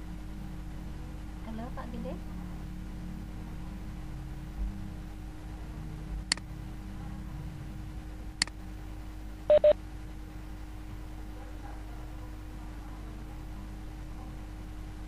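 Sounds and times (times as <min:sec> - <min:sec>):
steady low hum: 0:00.0 - 0:15.0
double electronic beep: 0:09.5 - 0:09.8.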